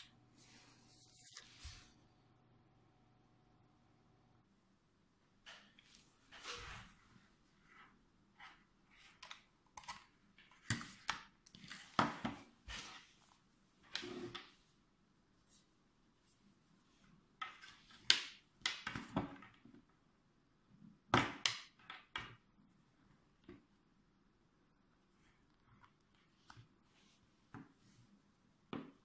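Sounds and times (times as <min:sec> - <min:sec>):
plastic handling clicks and rustles: 0:09.0 - 0:12.9.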